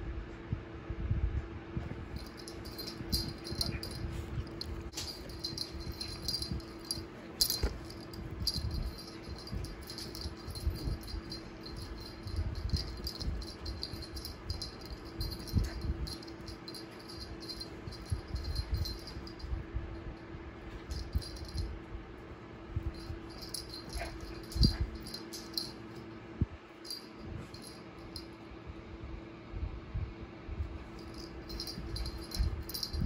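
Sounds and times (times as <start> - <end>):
fan humming: 1.7 - 29.1, 30.5 - 33.0
paws thumping on mattress: 2.2 - 19.5, 22.9 - 25.8
toy jingling and rattling: 2.2 - 19.6, 20.8 - 21.7, 22.9 - 26.0, 26.8 - 28.3, 30.9 - 33.0.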